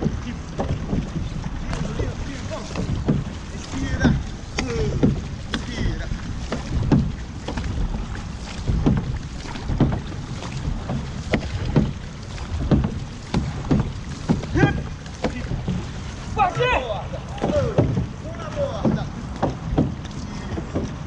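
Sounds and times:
paddle strokes splashing: 0.0 - 21.0
water rushing along hull: 0.0 - 21.0.

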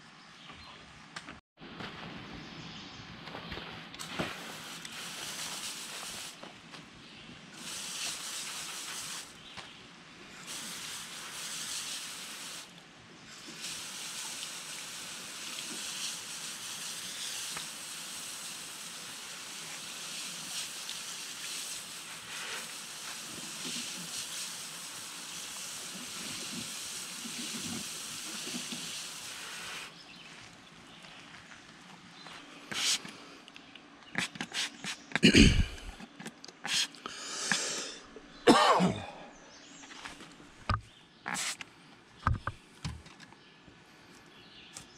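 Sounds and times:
hose spraying water on tire: 4.0 - 6.5, 7.6 - 9.5, 10.3 - 30.2, 32.7 - 33.0, 41.3 - 41.6.

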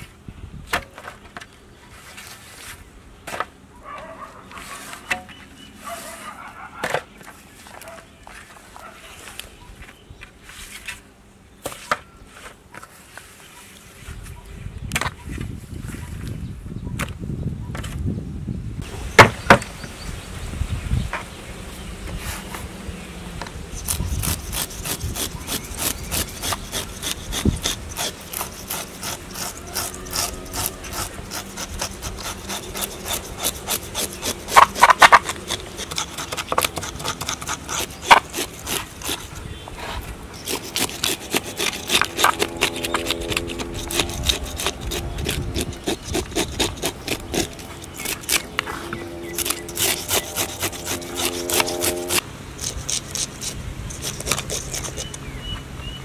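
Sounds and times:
rapid rasping scrapes: 23.8 - 55.3.

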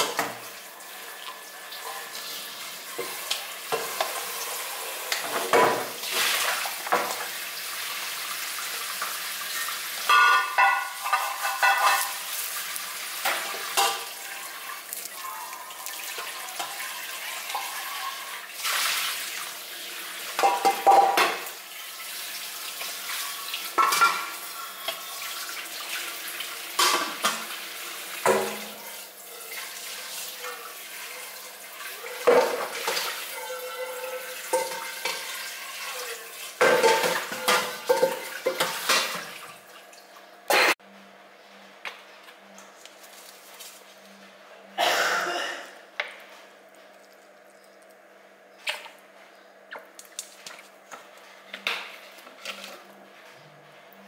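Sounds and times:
metal bowl knocking and clattering: 10.1 - 12.2.

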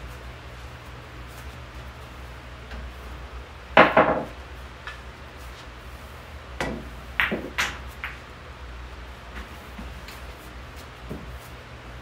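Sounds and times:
low fan hum: 0.0 - 12.0
pool balls clacking: 3.7 - 5.0, 6.6 - 8.3.

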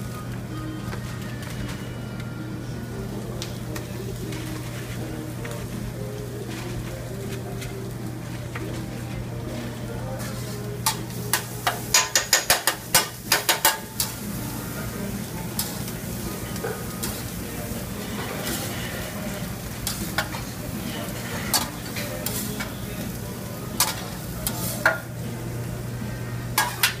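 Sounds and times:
meat sizzling on griddle: 9.6 - 27.0
metal spatula clacking on griddle: 10.8 - 14.2, 21.5 - 22.7, 23.8 - 25.1, 26.6 - 27.0.

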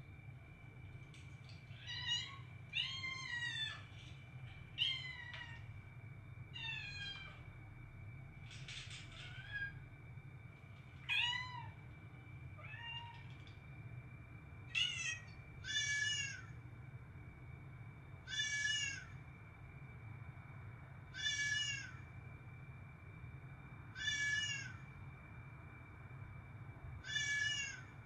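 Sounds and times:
cat meowing: 12.6 - 13.3, 14.8 - 16.5, 21.2 - 21.9, 24.0 - 24.7, 27.1 - 27.9.

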